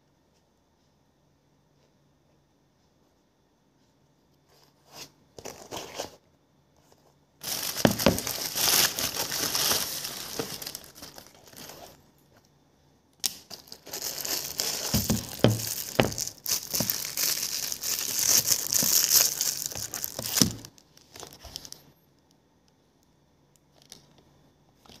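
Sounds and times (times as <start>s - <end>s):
plastic wrapping crinkling: 7.4s - 12.1s, 13.2s - 21.9s.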